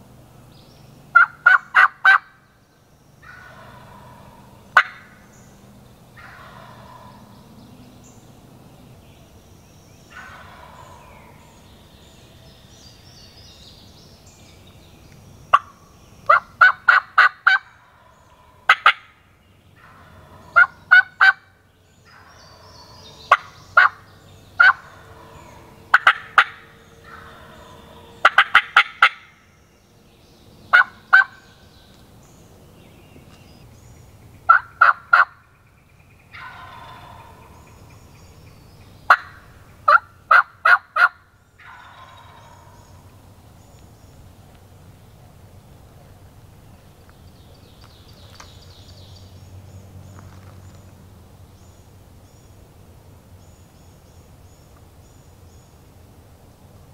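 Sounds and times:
turkey gobbling: 1.1s - 2.4s, 3.2s - 5.2s, 6.2s - 7.2s, 10.2s - 11.5s, 16.3s - 19.1s, 19.8s - 21.5s, 22.1s - 24.0s, 24.6s - 29.3s, 30.7s - 31.4s, 34.5s - 35.4s, 36.3s - 37.8s, 39.1s - 42.8s.

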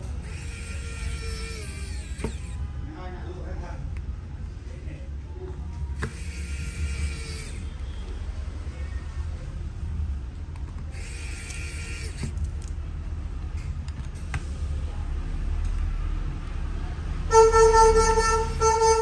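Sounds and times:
vehicle horn: 17.2s - 19.0s.

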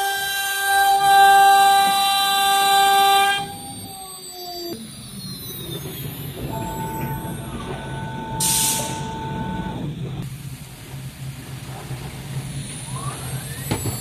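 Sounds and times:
router spindle whine: 0.0s - 10.2s.

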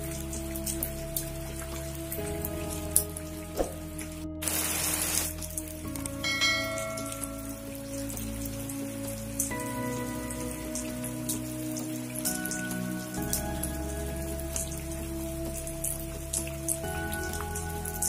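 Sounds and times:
rain falling: 0.0s - 18.0s
sharp raindrop clicks: 0.0s - 18.0s
soft background music chords: 0.0s - 18.0s
burst of hiss: 4.4s - 5.3s.

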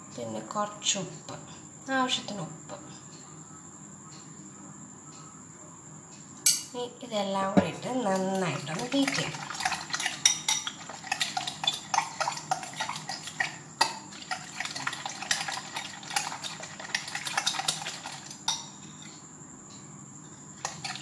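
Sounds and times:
utensil clinking glass bowl: 7.6s - 19.1s, 20.6s - 21.0s
wet egg slosh: 8.4s - 18.4s.

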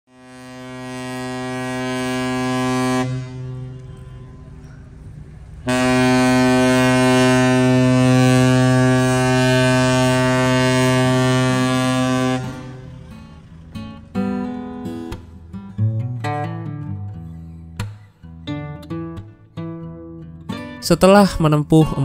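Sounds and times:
ship's horn blasts: 0.1s - 17.4s.

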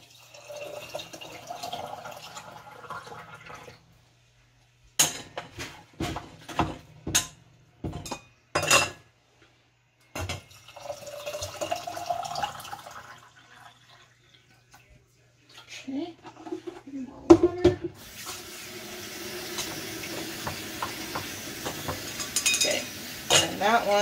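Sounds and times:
water pouring into glass jar: 0.0s - 3.8s, 10.5s - 14.8s
metal clinking against glass: 22.2s - 23.5s.

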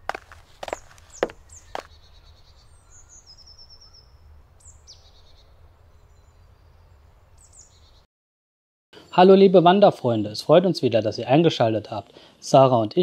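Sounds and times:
high bird chirps: 0.6s - 8.0s.

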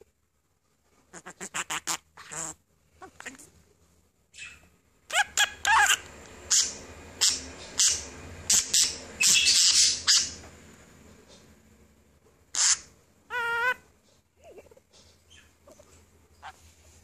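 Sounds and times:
parrot squawking: 1.1s - 3.5s, 4.3s - 10.5s, 12.5s - 13.9s, 16.4s - 16.7s.

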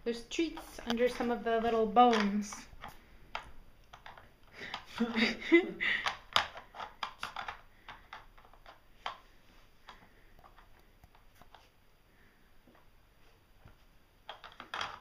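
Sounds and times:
plastic toy pieces clicking: 0.5s - 9.2s, 14.2s - 15.0s.

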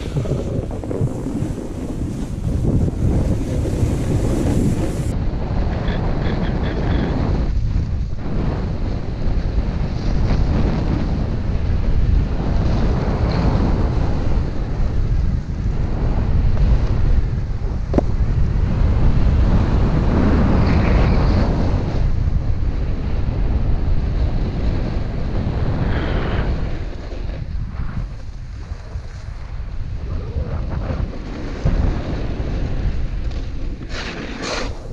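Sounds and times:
snowboard edge scraping snow: 0.0s - 5.1s, 30.7s - 34.9s
wind buffeting microphone: 0.0s - 34.9s.

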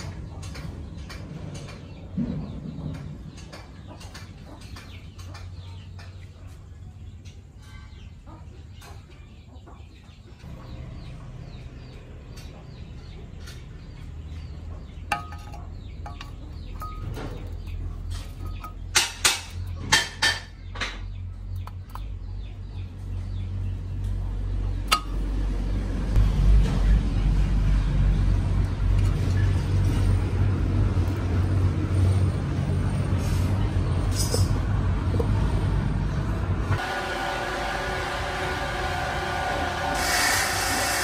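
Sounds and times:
low mechanical hum: 0.0s - 41.0s
metal clinks and knocks: 15.1s - 20.5s.

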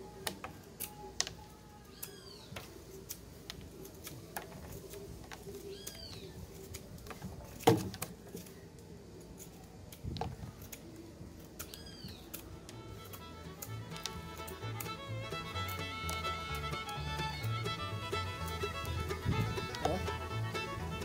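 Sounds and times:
sharp wood snap: 2.0s - 8.5s, 11.5s - 15.0s.

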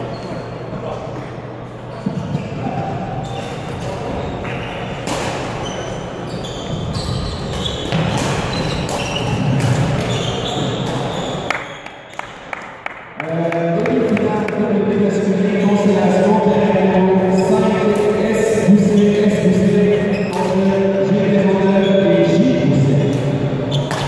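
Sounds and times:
rackets hitting shuttlecock: 3.7s - 5.6s, 7.4s - 11.1s, 23.0s - 24.0s
shoes squeaking on wooden floor: 5.6s - 11.5s, 18.8s - 20.6s
hall background noise: 13.2s - 24.0s.

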